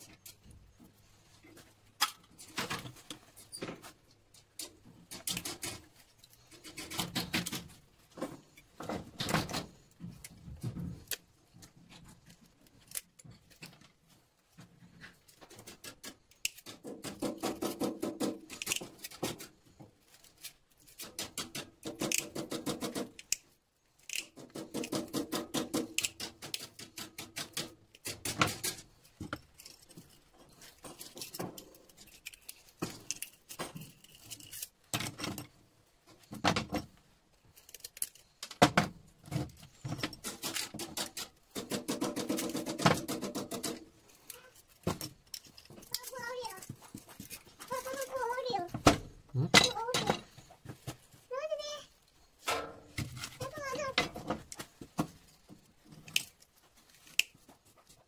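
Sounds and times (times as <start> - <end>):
small metal parts clicking: 12.2 - 13.9, 15.5 - 35.5, 37.3 - 38.6, 39.3 - 48.4, 55.2 - 58.0.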